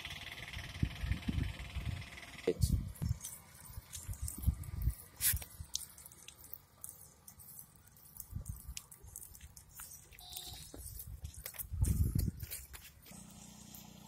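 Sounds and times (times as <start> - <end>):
goat hooves tapping on concrete: 3.2 - 13.1
brief tone: 10.2 - 10.8
dull low thumps: 11.1 - 12.5.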